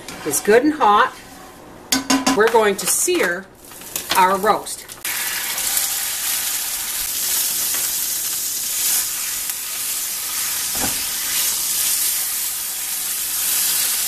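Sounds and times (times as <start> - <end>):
spatula knock: 1.9 - 2.6
meat sizzling in frying pan: 4.9 - 14.0.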